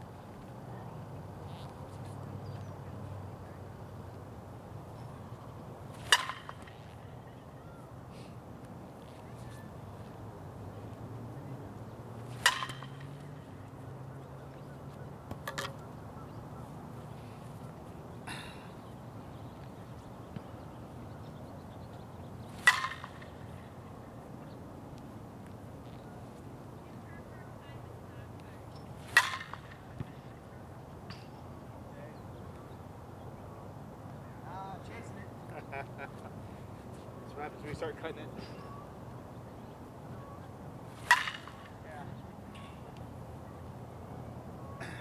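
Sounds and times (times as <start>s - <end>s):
bat hitting ball with ping: 6.0s - 6.9s, 12.3s - 13.3s, 22.6s - 23.4s, 29.1s - 30.1s, 41.0s - 41.8s.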